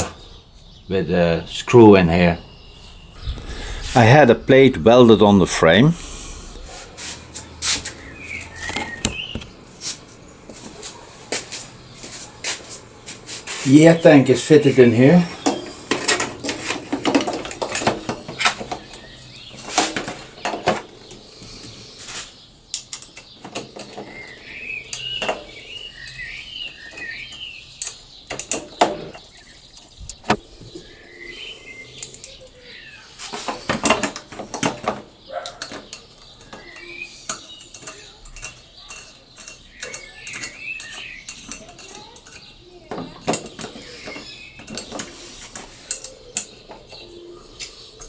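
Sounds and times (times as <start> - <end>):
bird chirping: 0.0 - 48.0
metallic clinks and knocks: 33.8 - 45.1.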